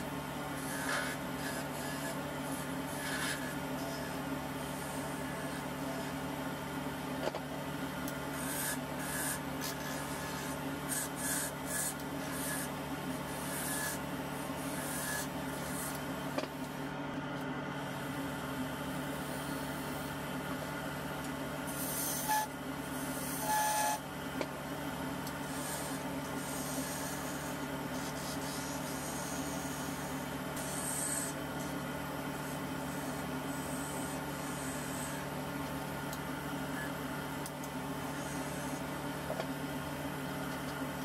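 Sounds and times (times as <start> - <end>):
chisel scraping spinning wood: 0.0 - 6.4, 7.2 - 16.8, 21.7 - 24.6, 25.2 - 36.0, 36.6 - 39.5
wood lathe humming: 0.0 - 17.0, 17.9 - 41.0
high squeals of tool on wood: 0.6 - 6.2, 13.4 - 14.0, 14.6 - 16.0, 21.7 - 24.1.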